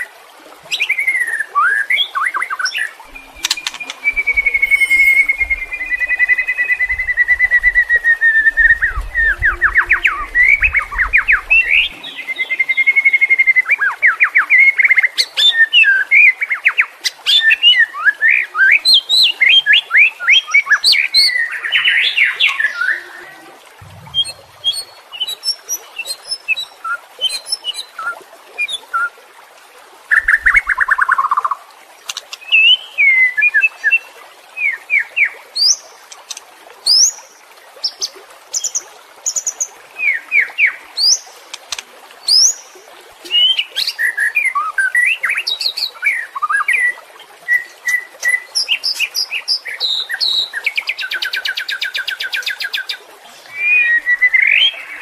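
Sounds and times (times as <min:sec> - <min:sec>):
bird singing whistled notes: 0:00.7 - 0:14.8, 0:23.9 - 0:26.7
bird trill: 0:02.8 - 0:07.5.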